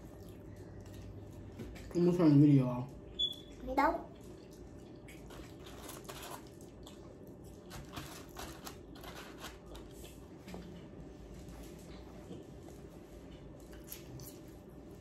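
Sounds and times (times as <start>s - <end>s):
chewing: 0.0s - 2.0s, 4.1s - 10.9s.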